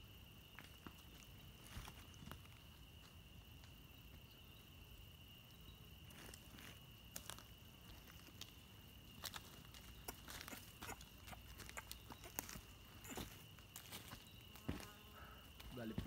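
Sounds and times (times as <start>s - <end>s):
high-pitched insect drone: 9.2s - 16.0s.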